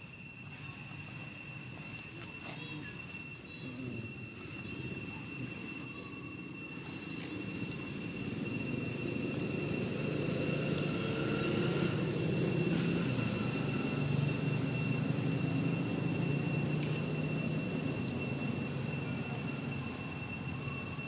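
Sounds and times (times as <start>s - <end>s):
high-pitched whines: 0.0s - 21.0s
passing vehicle engine rumble: 7.2s - 21.0s.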